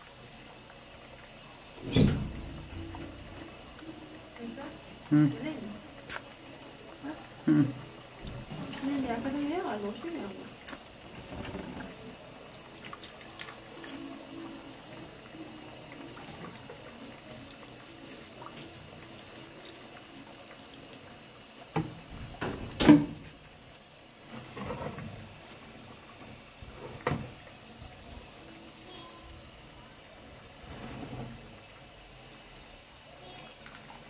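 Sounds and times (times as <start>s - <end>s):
water pouring into hot wax: 0.0s - 22.5s
hot wax bubbling: 0.0s - 34.0s.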